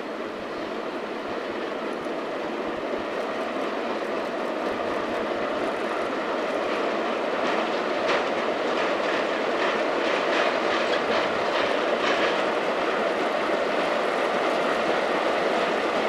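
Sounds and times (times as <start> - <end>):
steam locomotive running: 0.0 - 16.0.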